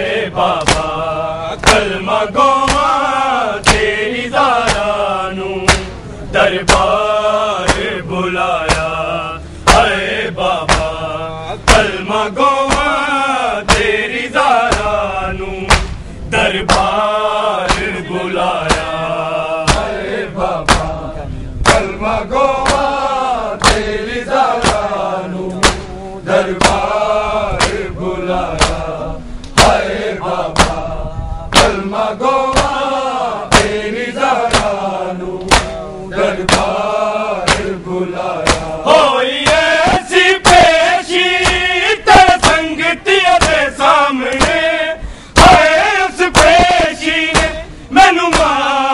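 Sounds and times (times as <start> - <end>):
group of men chanting: 0.0 - 48.9
hands slapping chests: 0.6 - 1.0, 1.6 - 2.0, 2.6 - 3.0, 3.6 - 3.9, 4.6 - 5.0, 5.7 - 6.0, 7.6 - 7.9, 8.6 - 9.0, 10.6 - 11.0, 11.7 - 12.0, 12.7 - 13.0, 13.7 - 13.9, 14.7 - 14.9, 15.7 - 16.0, 16.6 - 17.0, 17.6 - 17.9, 18.6 - 18.9, 19.7 - 20.0, 20.6 - 21.0, 21.6 - 22.0, 22.6 - 23.0, 23.6 - 23.9, 24.6 - 24.9, 25.5 - 26.0, 26.6 - 26.9, 27.6 - 27.8, 28.5 - 29.8, 30.5 - 30.8, 31.5 - 31.8, 32.5 - 32.8, 33.5 - 33.8, 34.4 - 34.8, 35.4 - 35.8, 36.4 - 36.8, 37.4 - 37.8, 38.4 - 38.8, 39.4 - 40.8, 41.4 - 42.6, 43.4 - 43.6, 44.3 - 44.6, 45.4 - 45.7, 46.3 - 47.6, 48.3 - 48.6.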